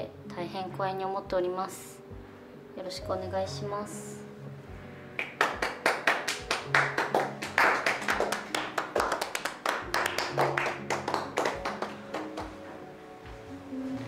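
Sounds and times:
quiet background music: 0.0 - 14.0
people clapping: 5.2 - 12.6.

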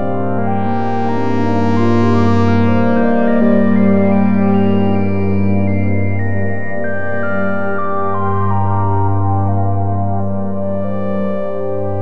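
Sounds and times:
low bass synth drone: 0.0 - 12.0.

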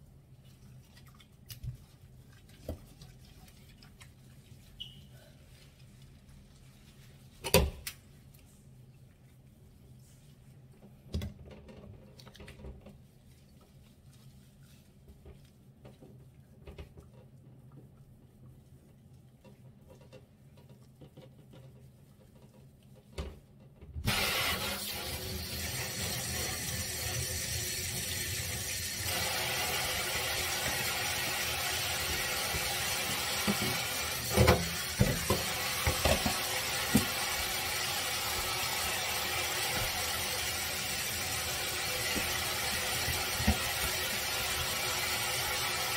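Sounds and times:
sink faucet water running: 24.0 - 45.9.

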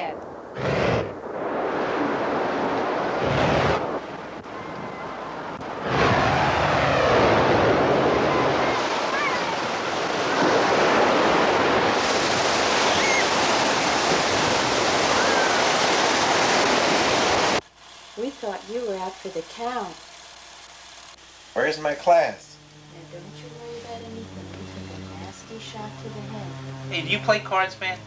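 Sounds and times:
ocean waves breaking: 0.8 - 17.6.

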